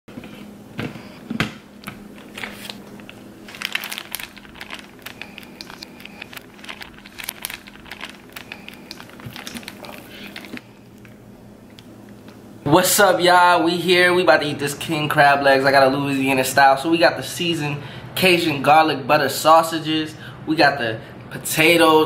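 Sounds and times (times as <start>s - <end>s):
plastic bag crinkling: 2.1s - 11.2s.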